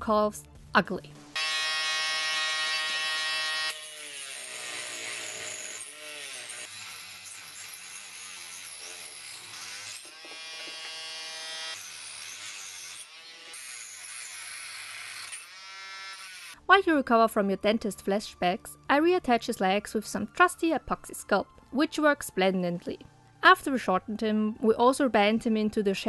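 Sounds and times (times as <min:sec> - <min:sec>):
rotary tool whining: 0:01.4 - 0:16.6.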